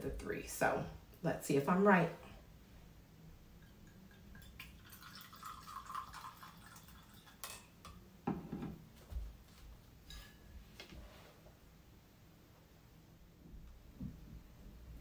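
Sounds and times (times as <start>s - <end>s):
wine pouring trickle: 3.6s - 7.8s.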